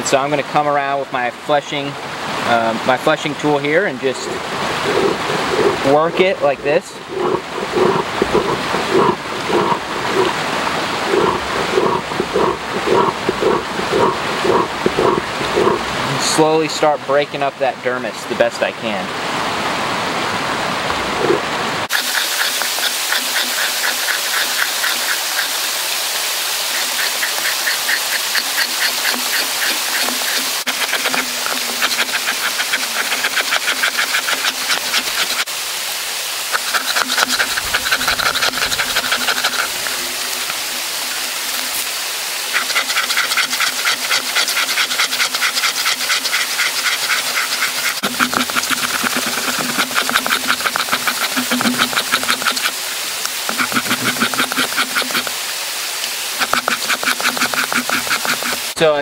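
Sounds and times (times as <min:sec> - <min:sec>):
fleshing tool scraping wet hide: 0:04.0 - 0:16.4, 0:21.3 - 0:35.5, 0:36.5 - 0:55.4, 0:56.4 - 0:58.8.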